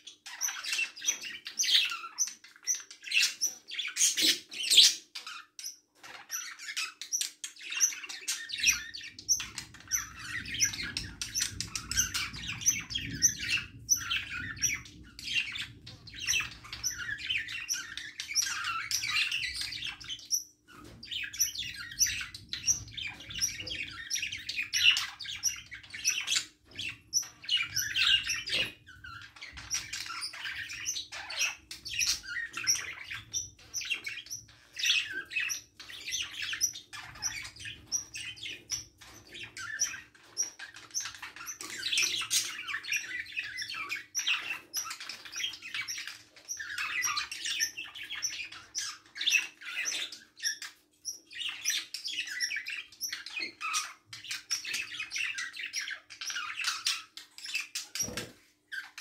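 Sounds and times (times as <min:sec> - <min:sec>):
budgerigars chattering: 0:07.6 - 0:59.0.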